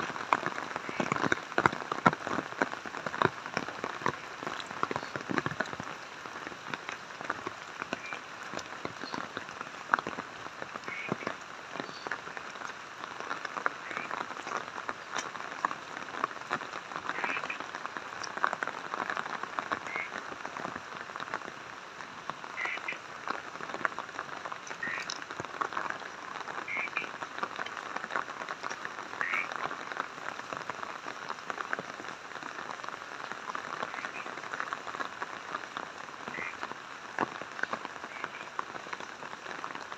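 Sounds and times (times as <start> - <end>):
rain falling: 0.0 - 39.9
frogs croaking: 0.4 - 2.2, 7.8 - 9.5, 10.8 - 12.4, 13.0 - 20.3, 22.4 - 23.4, 24.4 - 30.0, 33.6 - 35.3, 36.2 - 36.7, 37.5 - 38.7.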